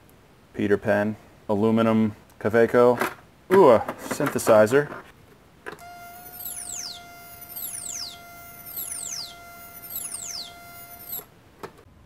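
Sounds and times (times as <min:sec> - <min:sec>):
synthesizer note with falling sweep: 0:06.1 - 0:11.3.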